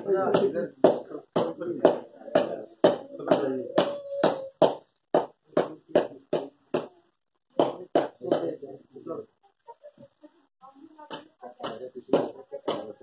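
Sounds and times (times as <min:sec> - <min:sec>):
sharp rhythmic percussion beats: 0:00.0 - 0:07.0.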